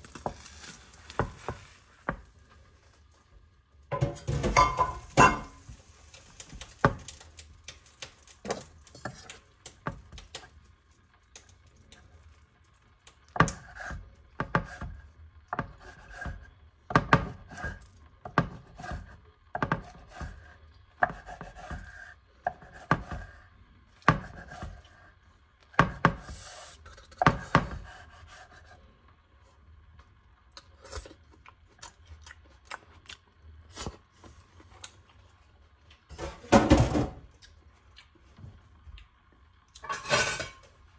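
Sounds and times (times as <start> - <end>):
knife chopping on wooden board: 13.3 - 23.4, 24.0 - 24.8, 25.7 - 26.4, 27.2 - 28.6.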